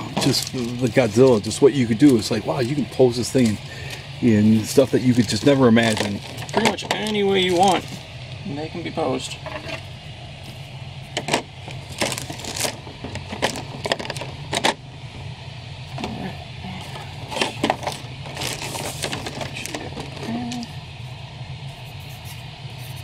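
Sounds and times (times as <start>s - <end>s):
plastic bags crinkling: 0.0s - 8.0s, 11.3s - 14.8s, 17.0s - 20.6s
low hum: 0.0s - 23.0s.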